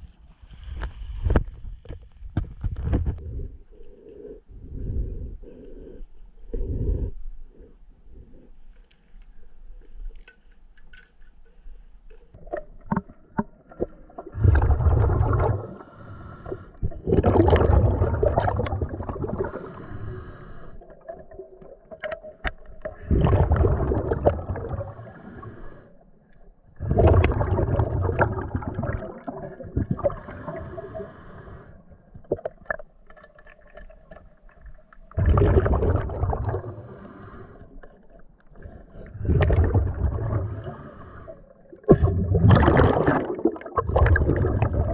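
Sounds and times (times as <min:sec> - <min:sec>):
exhaled bubbles underwater: 0:12.4 - 0:20.0, 0:20.8 - 0:25.5, 0:26.7 - 0:31.2, 0:35.0 - 0:37.4, 0:38.5 - 0:44.9.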